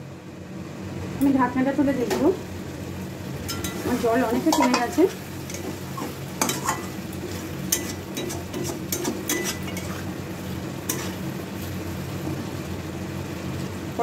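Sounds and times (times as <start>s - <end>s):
soft frying sizzle: 0.3s - 14.0s
metal spatula scraping a pan: 3.5s - 10.1s, 10.8s - 11.2s.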